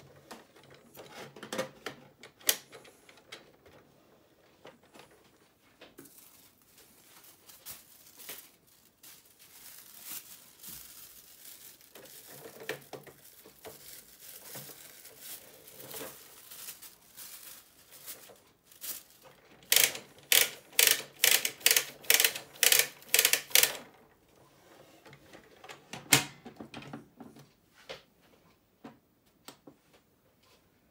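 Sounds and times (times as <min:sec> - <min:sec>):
plastic clicks and rustles: 0:00.0 - 0:24.4.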